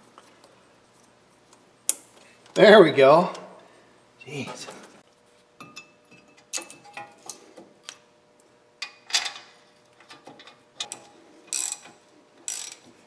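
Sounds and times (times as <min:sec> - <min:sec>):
ratchet clicking: 0:10.8 - 0:12.9.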